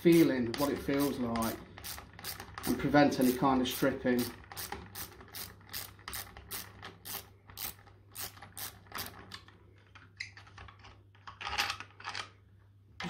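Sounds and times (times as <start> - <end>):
hand ratchet clicking: 0.0 - 9.3.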